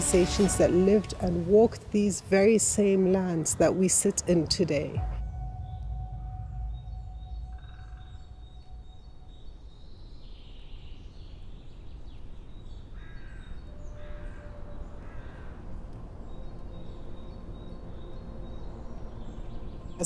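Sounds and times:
low rumble: 4.9 - 10.6
crow cawing: 12.9 - 15.7.

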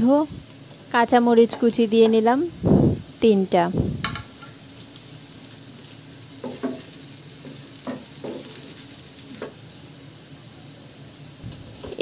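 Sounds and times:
vegetables sizzling in oil: 0.0 - 12.0
spatula knocking against pan: 6.4 - 6.9, 7.8 - 8.6.

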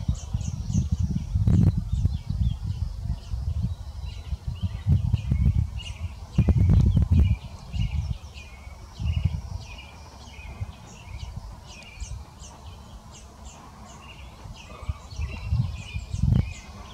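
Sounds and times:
microphone rumbles: 0.0 - 8.2, 9.0 - 9.8, 14.2 - 16.9
fledgling bird chirping: 0.0 - 16.9.

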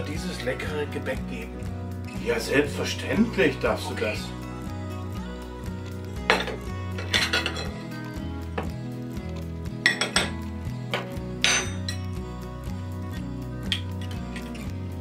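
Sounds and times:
plates and spoons clinking: 6.3 - 7.8, 9.9 - 12.0.

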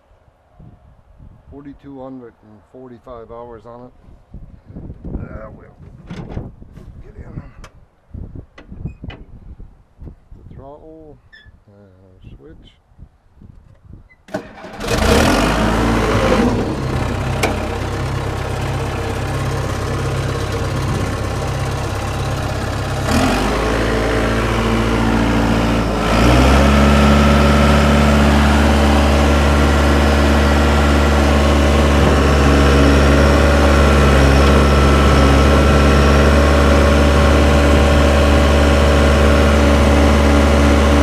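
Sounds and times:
diesel dozer engine starting and running: 14.3 - 41.0.

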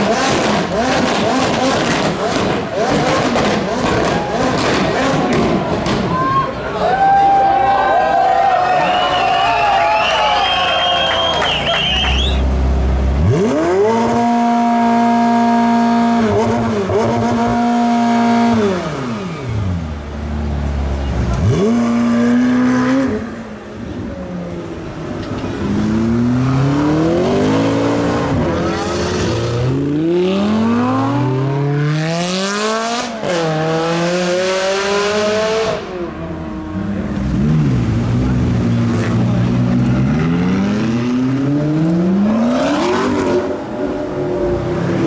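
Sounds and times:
car accelerating through upshifts: 0.0 - 5.6, 13.1 - 23.5, 25.0 - 45.0
car engine revving: 0.0 - 6.0, 11.3 - 45.0.

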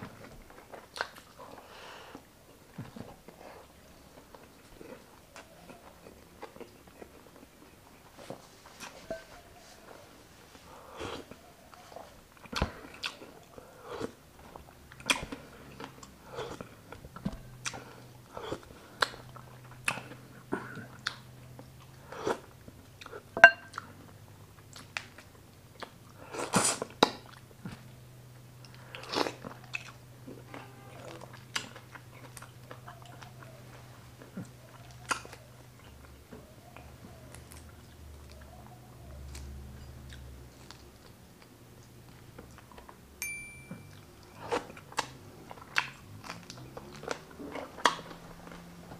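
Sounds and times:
faint low hum: 0.0 - 48.9
person chewing: 11.1 - 17.0, 28.6 - 33.6, 43.9 - 48.9.

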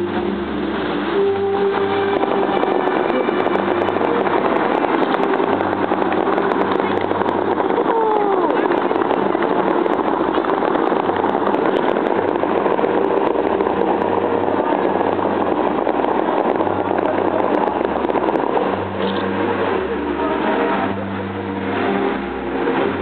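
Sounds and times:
fountain water jets roaring: 0.0 - 23.0.

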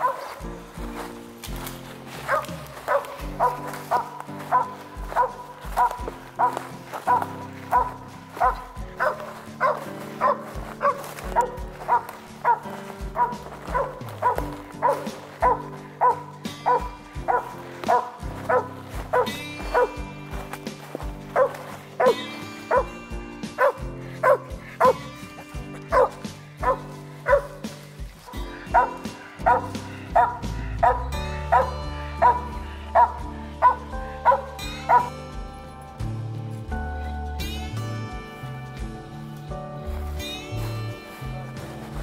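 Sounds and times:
dog barking: 0.0 - 0.4, 2.3 - 20.0, 21.4 - 22.9, 23.6 - 25.1, 25.9 - 27.7, 28.6 - 35.1
background music: 0.0 - 42.0.

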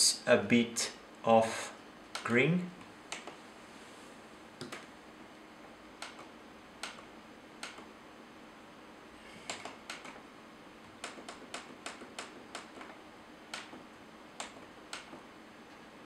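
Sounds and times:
monitor buttons clicking: 2.1 - 2.4, 3.1 - 3.4, 4.6 - 4.9, 6.0 - 7.9, 9.5 - 10.2, 10.8 - 15.2.

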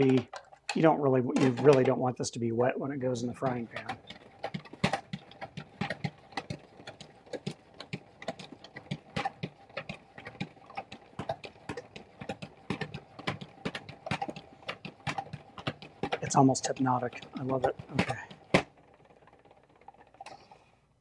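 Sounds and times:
clicks and rattles of spinner: 0.0 - 21.0
salad spinner whirring: 0.0 - 21.0.

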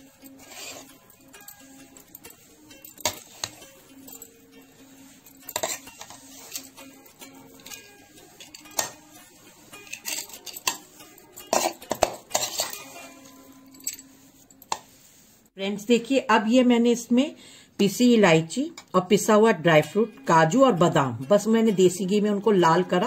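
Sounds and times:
metal spoon scraping a pan: 0.0 - 15.0.

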